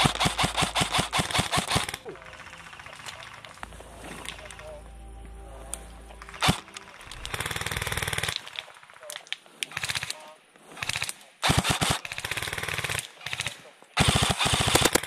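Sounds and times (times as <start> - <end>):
airsoft rifles firing bursts: 0.0 - 3.6, 7.2 - 15.0
sharp crack: 0.0 - 4.8.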